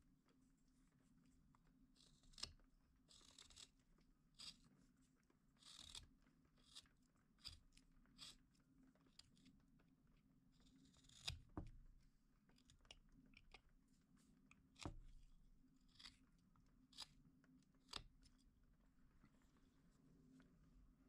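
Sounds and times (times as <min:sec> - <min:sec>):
knife scraping wood: 0:02.0 - 0:03.8, 0:04.4 - 0:04.7, 0:05.6 - 0:08.4, 0:10.6 - 0:11.8, 0:14.8 - 0:15.3, 0:15.9 - 0:16.2.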